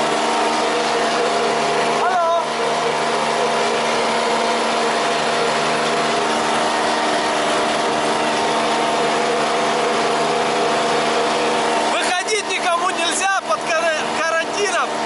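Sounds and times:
tractor engine droning: 0.0s - 15.0s.

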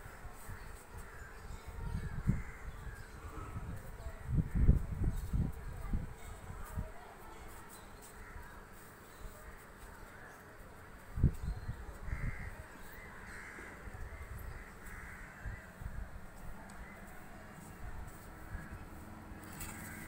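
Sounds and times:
crows cawing: 8.2s - 8.5s, 12.0s - 15.9s, 19.5s - 20.0s.

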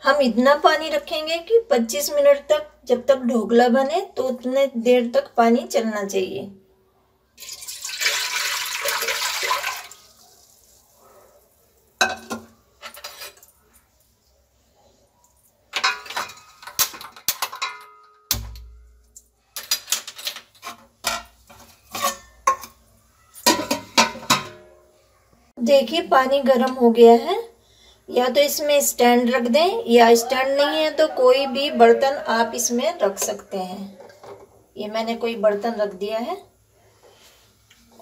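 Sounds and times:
water pouring into metal pot: 7.4s - 10.8s
metal pans and lid clinking: 12.0s - 13.5s, 15.7s - 18.8s, 19.6s - 24.9s.

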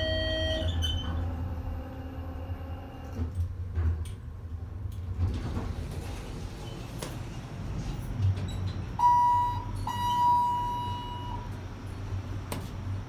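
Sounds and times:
elevator electronic chime: 0.0s - 0.9s, 9.0s - 11.5s
low elevator hum: 0.0s - 13.0s.

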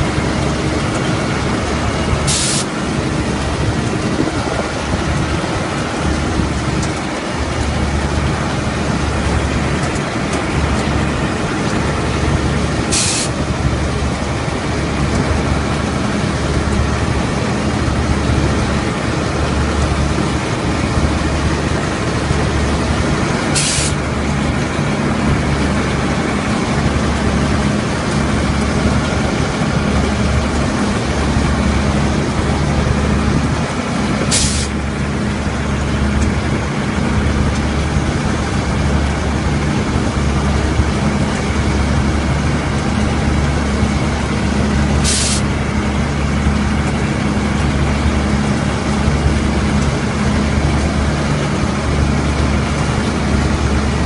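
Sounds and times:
combine harvester engine drone: 0.0s - 54.0s
short hiss: 2.3s - 2.7s, 12.9s - 13.4s, 23.6s - 24.0s, 34.3s - 34.8s, 45.0s - 45.5s.

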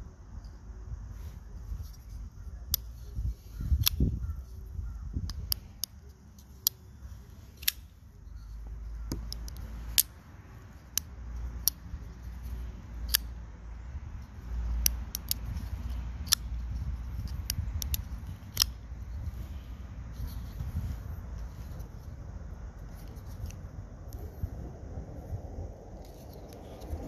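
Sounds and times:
folding knife clicking: 3.7s - 4.1s, 7.6s - 7.9s, 13.0s - 13.4s, 14.7s - 18.8s.

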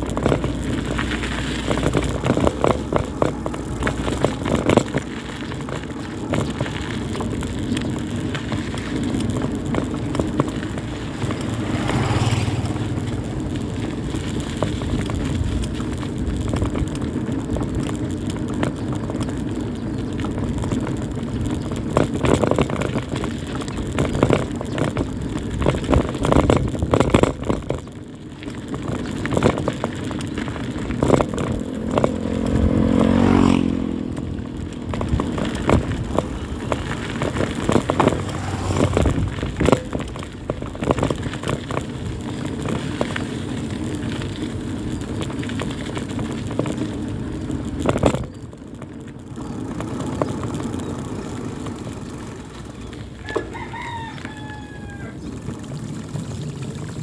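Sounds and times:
wind noise on microphone: 0.0s - 51.0s
bicycle rattling on rough road: 0.0s - 57.0s
rooster crowing: 53.2s - 55.3s.

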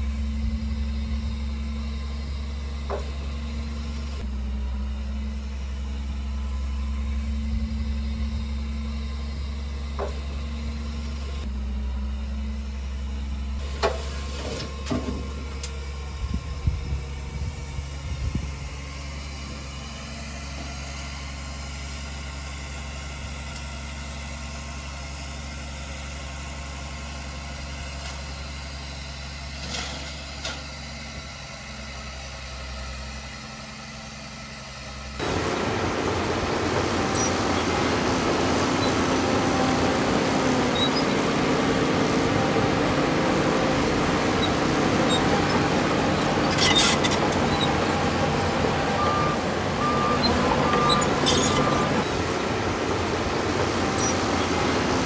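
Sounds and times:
heavy machinery diesel engine: 0.0s - 55.0s
reversing beeps: 48.8s - 52.1s.

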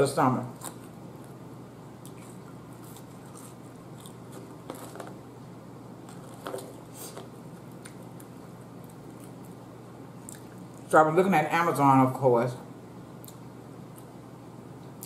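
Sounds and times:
faint steady hum: 0.0s - 15.0s
person chewing fries: 2.0s - 5.2s, 6.0s - 10.8s.

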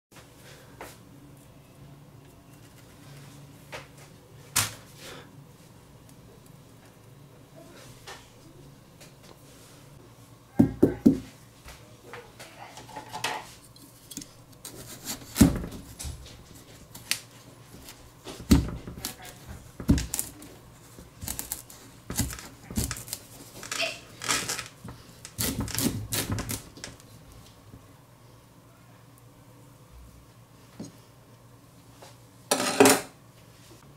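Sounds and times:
knife cutting pumpkin rind: 13.9s - 23.4s, 25.3s - 26.7s.

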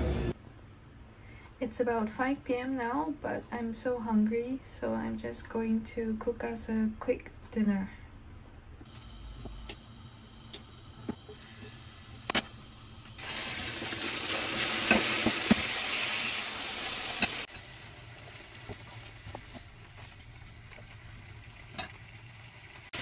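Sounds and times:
chicken wings sizzling in pan: 8.9s - 23.0s.

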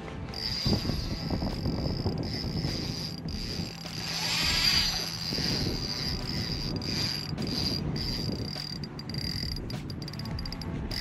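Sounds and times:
fishing reel whirring: 0.0s - 11.0s.

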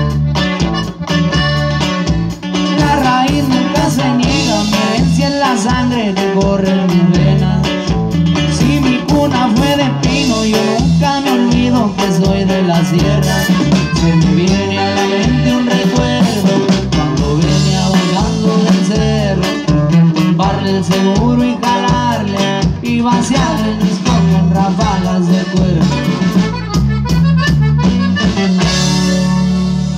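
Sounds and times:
drum kit: 0.0s - 29.9s
electric bass: 0.0s - 29.9s
guitar: 0.0s - 29.9s.

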